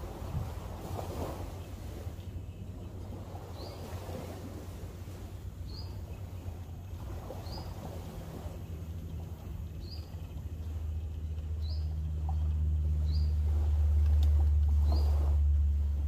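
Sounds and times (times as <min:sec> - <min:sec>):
motorboat engine hum: 0:00.0 - 0:16.0
bird chirping: 0:08.7 - 0:13.4.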